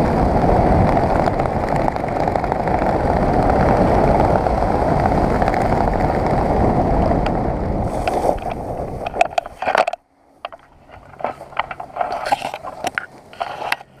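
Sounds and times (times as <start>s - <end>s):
wind rushing over microphone: 0.0s - 14.0s
fabric rustles and clicks: 7.8s - 14.0s.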